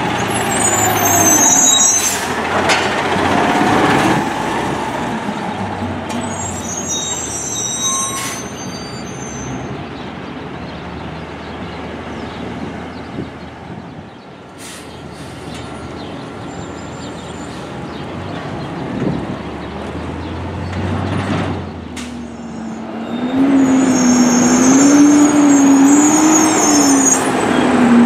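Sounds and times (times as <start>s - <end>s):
garbage truck diesel engine: 0.0s - 13.8s
high brake squeals: 0.1s - 2.4s, 6.1s - 9.7s, 16.4s - 17.8s, 22.3s - 27.8s.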